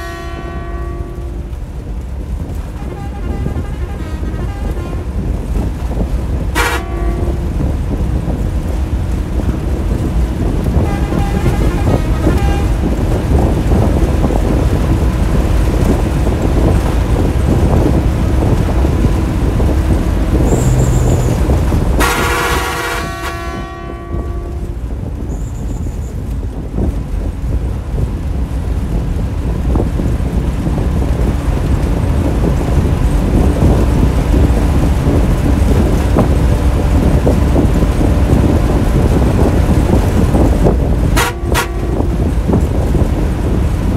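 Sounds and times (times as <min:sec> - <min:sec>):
bus horn: 0:00.0 - 0:01.6, 0:02.5 - 0:05.7, 0:06.4 - 0:08.1, 0:10.7 - 0:13.6, 0:17.5 - 0:25.0, 0:39.1 - 0:42.9
bus engine and road noise: 0:00.0 - 0:43.9.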